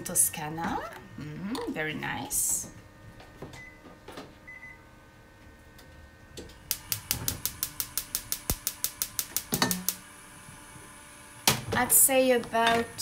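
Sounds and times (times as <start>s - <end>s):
gas igniter clicking: 6.4s - 10.0s.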